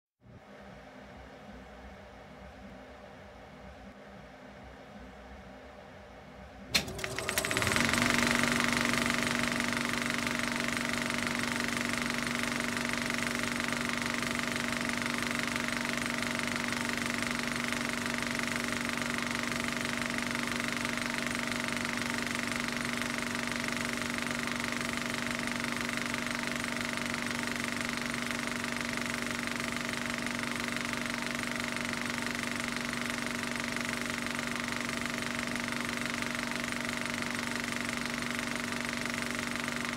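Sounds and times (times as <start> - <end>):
machine switch click: 6.7 - 7.9
machine humming and whining: 6.7 - 39.9.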